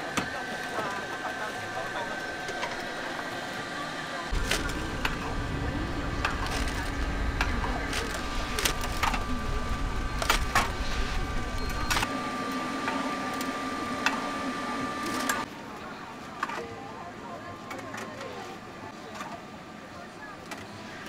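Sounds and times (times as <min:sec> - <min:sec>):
machine hum: 0:00.0 - 0:15.5
background chatter: 0:00.0 - 0:21.0
low rumble: 0:04.3 - 0:11.9.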